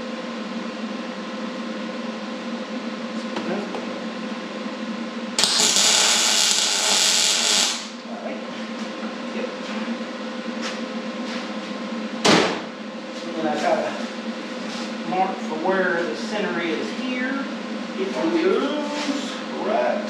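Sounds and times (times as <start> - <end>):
steady shop hum: 0.0 - 20.0
welder arc crackle: 5.4 - 8.0.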